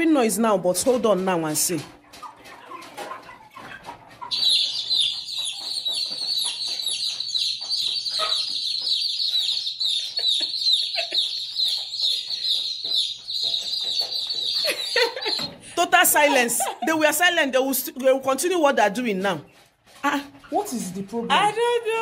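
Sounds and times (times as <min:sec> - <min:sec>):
chickens clucking: 0:00.6 - 0:18.3
baby chicks peeping: 0:01.8 - 0:17.4.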